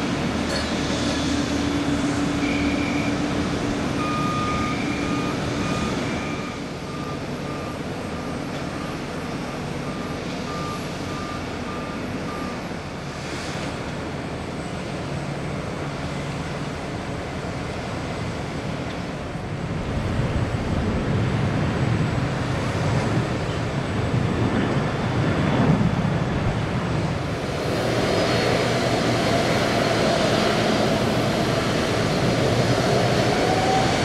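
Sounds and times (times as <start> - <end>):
roar of aircraft and ground equipment: 0.0 - 34.0
vehicle reversing beeper: 2.2 - 13.0, 32.9 - 34.0.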